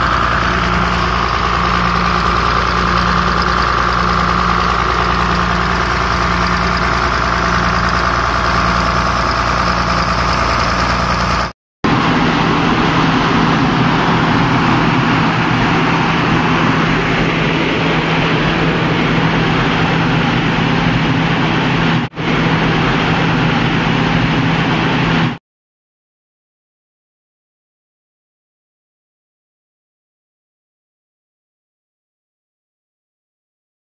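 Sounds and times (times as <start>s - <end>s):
diesel generator running: 0.0s - 25.4s
steady whine: 0.0s - 25.4s.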